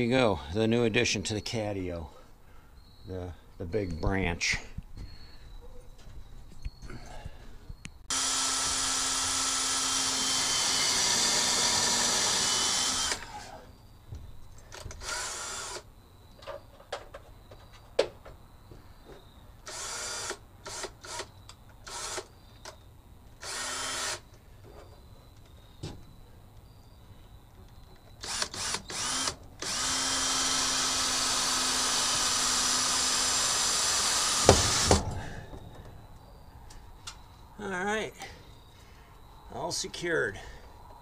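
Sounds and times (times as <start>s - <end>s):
cordless drill driving screws: 8.1s - 13.6s, 14.7s - 15.8s, 19.7s - 22.3s, 23.4s - 24.2s, 28.2s - 35.0s.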